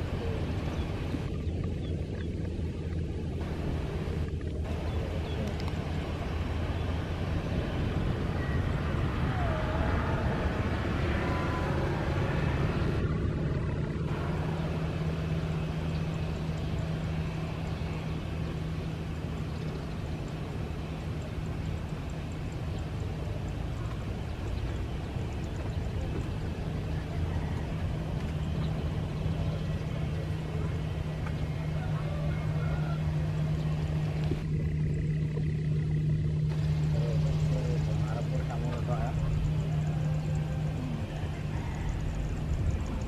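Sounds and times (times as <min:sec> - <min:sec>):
distant jet engines rumbling: 0:00.0 - 0:43.0.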